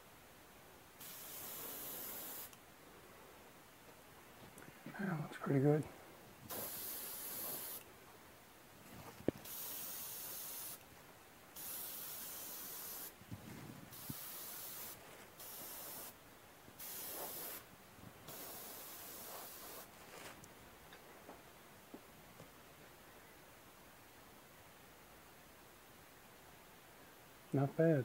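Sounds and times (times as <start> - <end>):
airbrush spraying hiss: 1.0 - 2.6, 6.5 - 7.9, 9.4 - 10.8, 11.5 - 13.2, 13.9 - 16.2, 16.8 - 17.7, 18.3 - 19.9.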